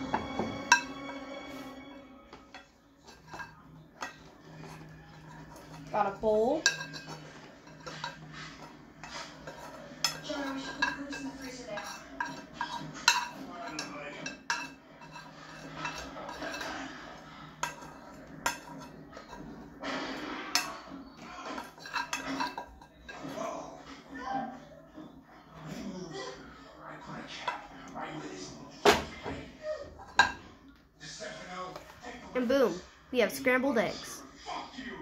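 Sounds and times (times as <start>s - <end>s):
spoon scraping frying pan: 2.3s - 23.4s.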